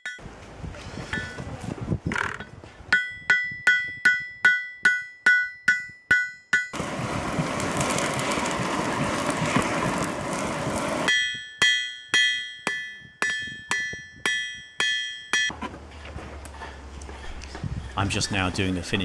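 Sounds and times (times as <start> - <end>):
forge fire rushing: 6.8 - 11.1.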